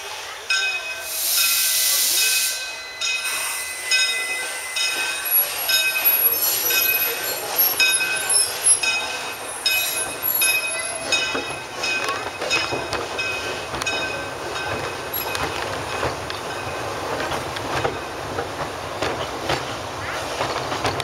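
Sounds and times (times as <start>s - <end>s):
wheels squealing on rails: 0.0s - 18.0s
steam hissing: 1.0s - 11.8s.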